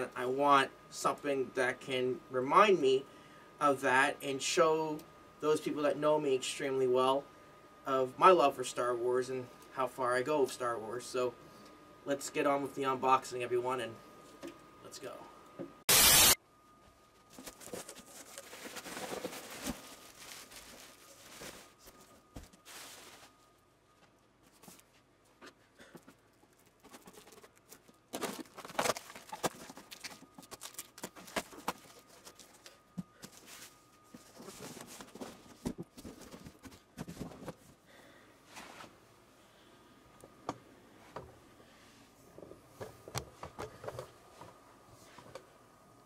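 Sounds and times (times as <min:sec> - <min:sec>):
cardboard rustling and scraping: 0:17.2 - 0:23.5, 0:26.5 - 0:37.8.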